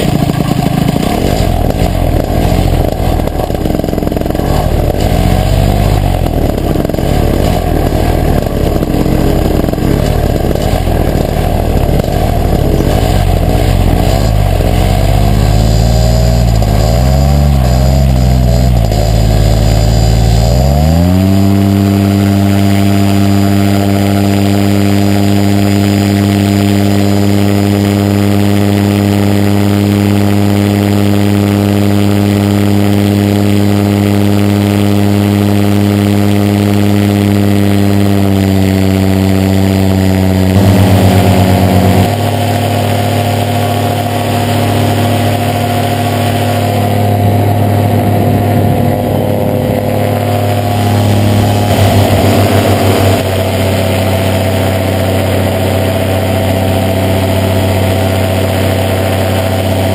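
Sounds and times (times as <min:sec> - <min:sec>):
engine and propeller running: 0:00.0 - 0:59.9.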